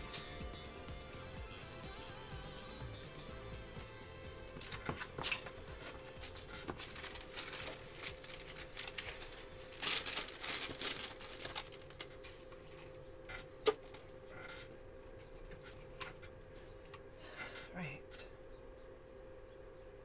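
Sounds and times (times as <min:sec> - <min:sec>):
faint background music: 0:00.0 - 0:20.0
fur and foam rustling: 0:05.5 - 0:12.5.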